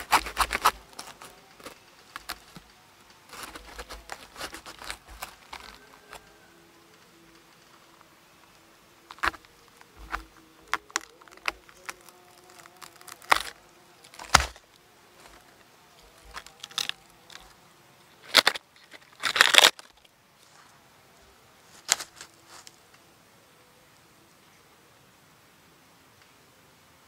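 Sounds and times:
knife cracking spiny husk: 0.0 - 2.7, 3.3 - 6.3, 9.1 - 17.6, 18.2 - 20.1
faint steady buzz: 0.0 - 27.0.

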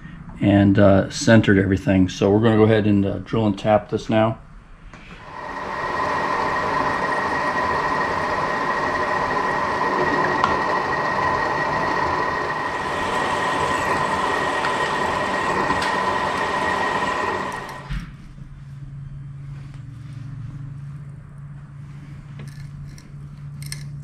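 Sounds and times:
milling machine whine: 5.0 - 18.2
drill bit boring into metal: 5.2 - 18.0.

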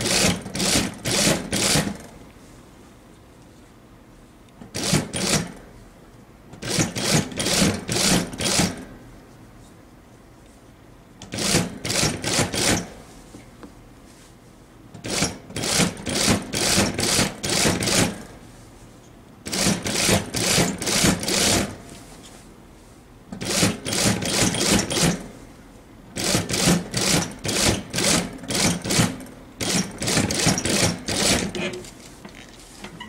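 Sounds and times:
industrial sewing machine stitching: 0.0 - 2.0, 4.8 - 5.5, 6.6 - 8.8, 11.3 - 12.9, 15.0 - 18.2, 19.5 - 21.8, 23.4 - 25.2, 26.2 - 31.8.

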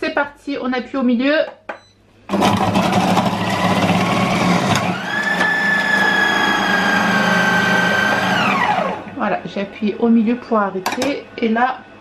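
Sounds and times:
food processor shredding carrots: 2.3 - 9.2
motor whine: 3.9 - 9.1.

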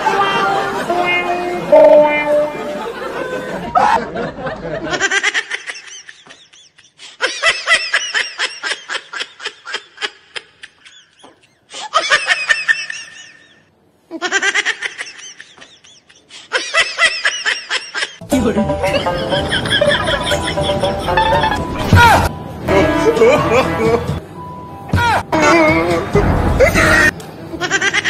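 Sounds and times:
high-pitched giggling laughter: 2.6 - 18.2, 18.9 - 22.2, 26.7 - 28.0.

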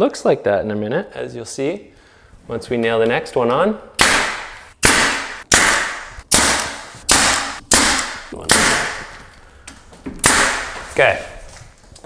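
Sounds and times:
nail gun firing into wood: 4.0 - 9.2, 10.2 - 10.8.

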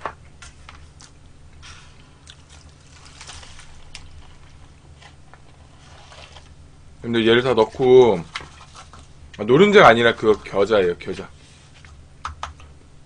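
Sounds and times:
broth trickling into bowl: 2.0 - 6.6, 7.5 - 9.4.

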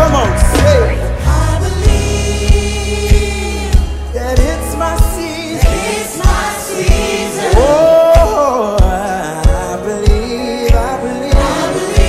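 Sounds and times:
electric bass: 0.0 - 5.6
drum kit beating: 0.0 - 12.0
gospel choir singing: 0.1 - 12.0.

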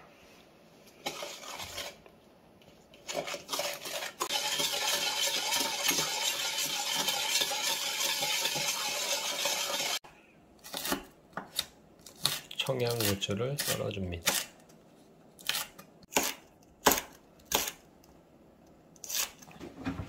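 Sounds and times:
metal spoon scraping steel bowl: 1.0 - 2.0, 3.1 - 10.0.

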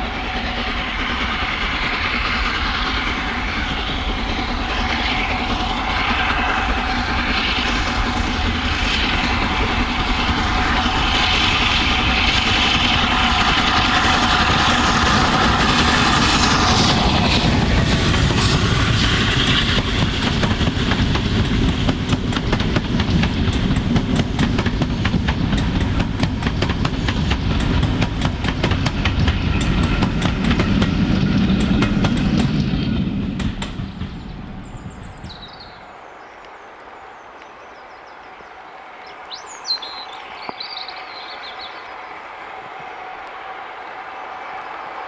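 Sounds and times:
steam train passing rumble: 0.0 - 45.0
birds chirping: 33.7 - 43.2.

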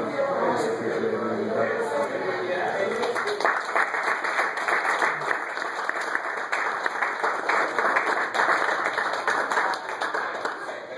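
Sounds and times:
crowd applauding: 2.8 - 10.9.

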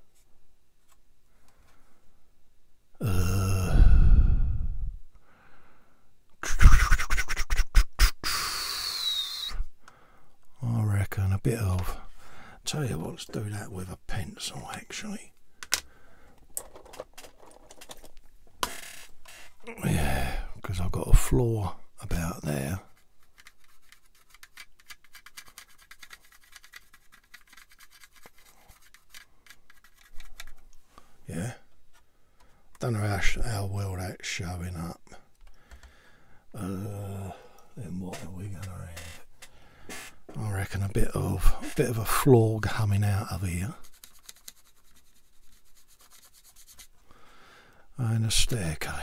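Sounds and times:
man sighing: 3.0 - 5.6, 19.6 - 20.6, 35.9 - 37.7, 41.4 - 42.2
pencil scratching on plastic: 22.8 - 30.6, 38.1 - 47.0.

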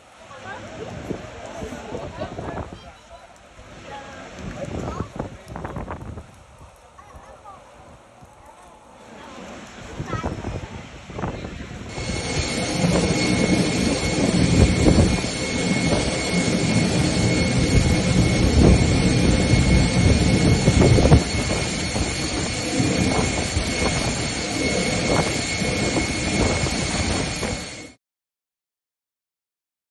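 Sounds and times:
jet engines running: 7.6 - 28.0.

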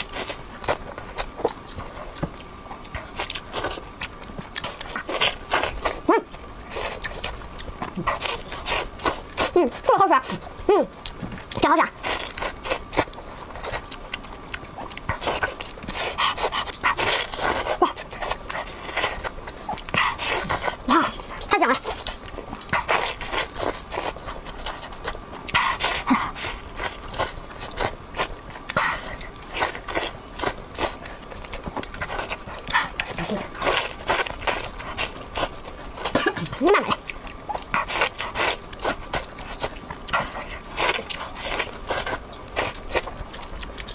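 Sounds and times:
wet chewing: 0.0 - 43.9.

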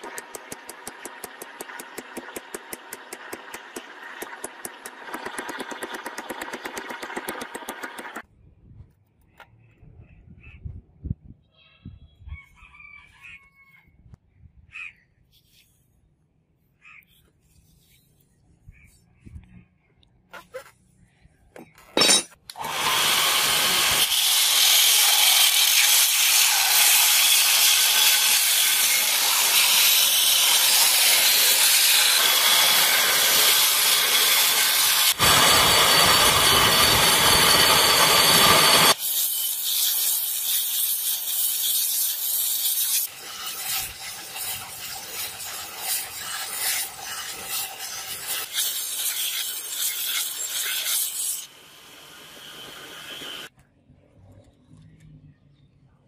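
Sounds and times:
belt grinder grinding metal: 0.0 - 8.2, 22.0 - 51.5.

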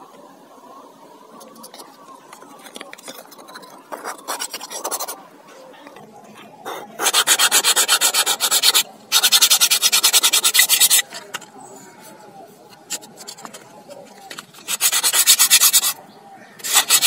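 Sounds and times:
sandpaper sanding wood: 3.1 - 5.2, 7.0 - 11.1, 14.3 - 16.0, 16.6 - 17.0.

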